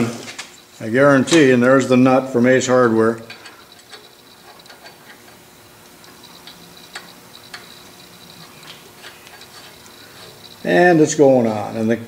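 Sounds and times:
metal nut clicking on thread: 3.2s - 11.0s.

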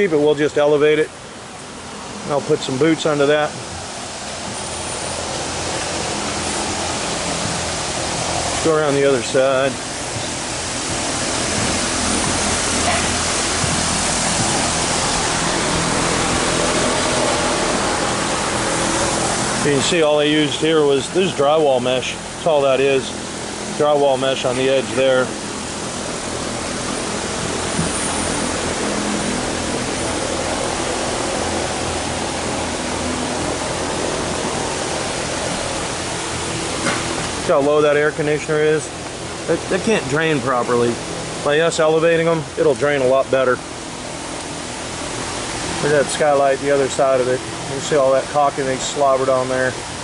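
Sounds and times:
loud rushing hiss: 0.0s - 50.0s.

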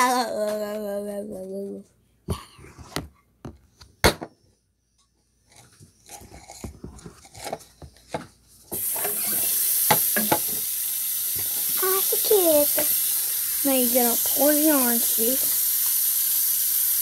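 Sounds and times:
water running from tap: 8.7s - 17.0s.

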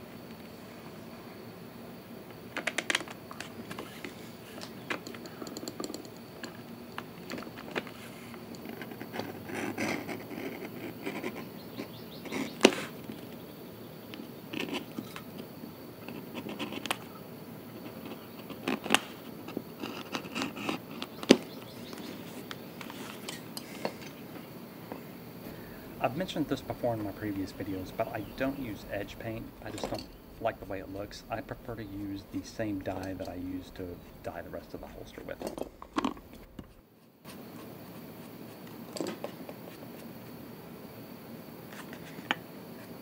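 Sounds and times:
handling noise and clicks: 2.3s - 13.4s, 26.0s - 37.5s
edge tool scraping leather: 8.0s - 13.0s, 14.5s - 15.0s, 16.0s - 17.0s, 19.8s - 21.4s.

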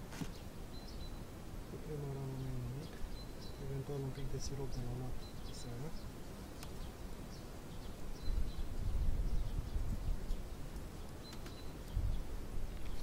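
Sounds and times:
faint bird chirps: 0.1s - 13.0s
low rumble on microphone: 7.8s - 11.0s, 11.8s - 13.0s.

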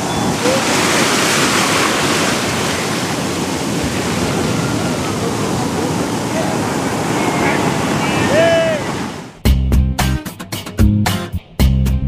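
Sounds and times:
ocean waves breaking: 0.0s - 9.4s.

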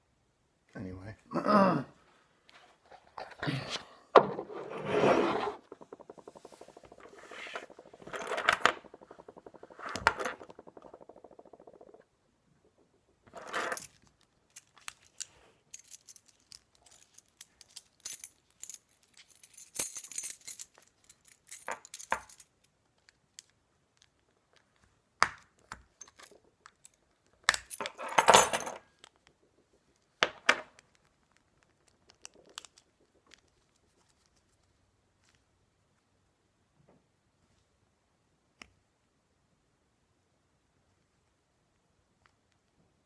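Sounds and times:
keys jangling on a ring: 14.6s - 22.5s.

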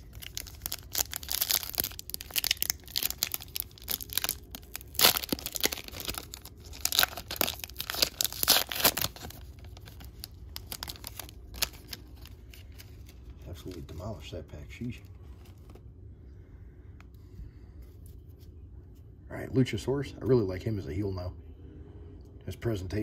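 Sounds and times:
wrapper tearing and crinkling: 0.0s - 14.0s.

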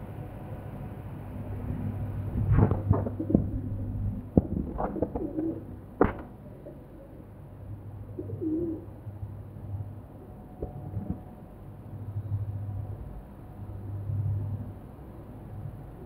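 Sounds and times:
steady low hum: 0.0s - 16.0s
pigeons cooing: 4.7s - 5.7s, 8.1s - 9.0s.

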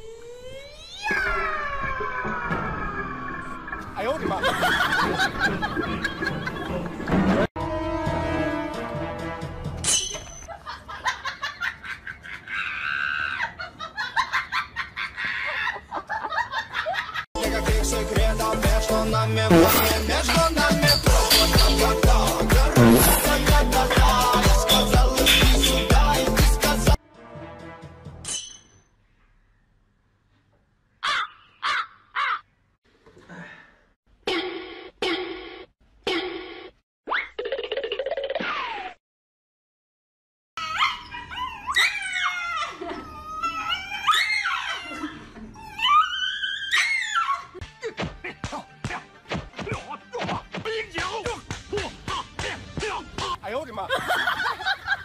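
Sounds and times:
people laughing hard: 4.2s - 7.0s, 10.5s - 17.3s, 53.8s - 55.0s
music: 5.4s - 9.9s, 17.4s - 28.2s, 47.6s - 53.9s.

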